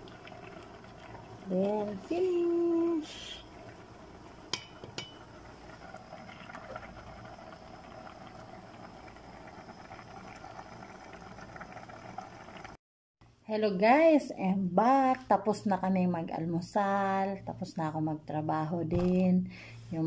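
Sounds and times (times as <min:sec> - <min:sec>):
soup simmering: 0:00.0 - 0:12.8.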